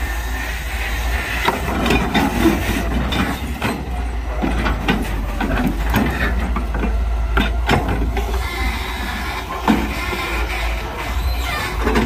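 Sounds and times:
excavator engine and hydraulics: 0:00.0 - 0:12.0.

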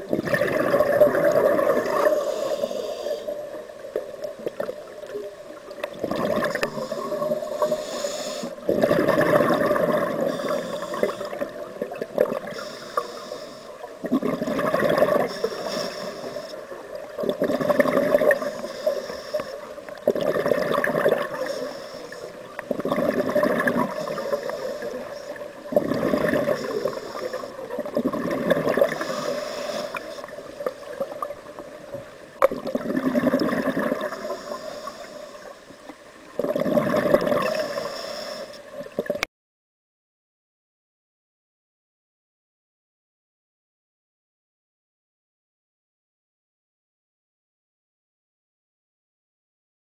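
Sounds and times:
exhaled bubbles gurgling: 0:00.0 - 0:35.2, 0:36.2 - 0:39.3
regulator breaths: 0:02.0 - 0:03.5, 0:06.6 - 0:08.6, 0:10.2 - 0:11.4, 0:12.5 - 0:13.9, 0:15.2 - 0:16.7, 0:18.4 - 0:19.8, 0:21.3 - 0:22.4, 0:28.9 - 0:30.4, 0:34.1 - 0:35.6, 0:37.5 - 0:38.6.

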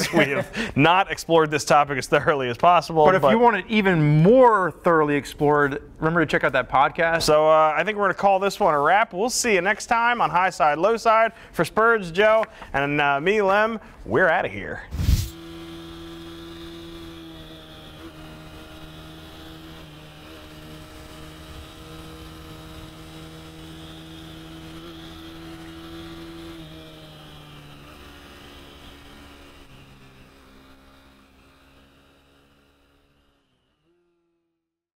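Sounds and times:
motorcycle engine droning: 0:15.2 - 0:34.5.

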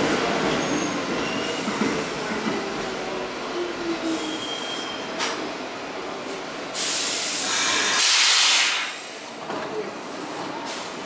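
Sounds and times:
subway train wheels squealing: 0:00.0 - 0:05.5, 0:06.8 - 0:09.2
brake air hiss: 0:06.8 - 0:09.3.

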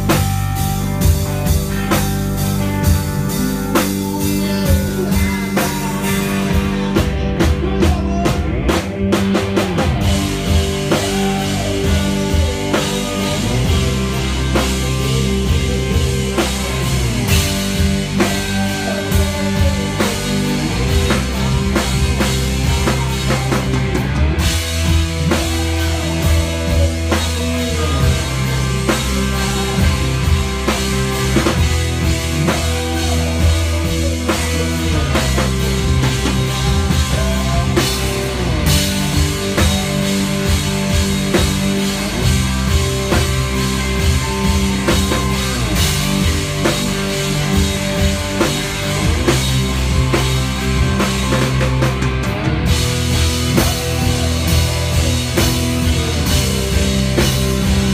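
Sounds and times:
bass guitar: 0:00.0 - 0:57.9
drum kit: 0:00.0 - 0:57.9
electric guitar lines: 0:00.0 - 0:57.9.

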